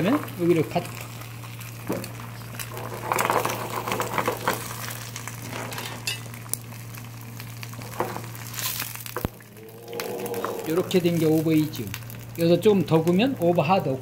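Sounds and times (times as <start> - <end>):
eggs sizzling in oil: 0.0 - 14.0.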